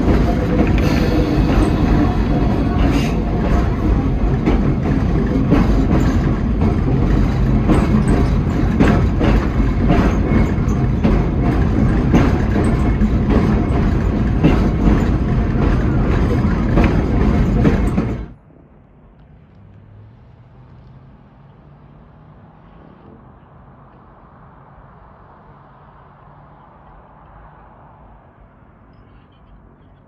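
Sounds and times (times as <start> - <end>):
wheels clicking over rail joints: 0.0 - 18.4
electric train rumbling: 0.0 - 30.0.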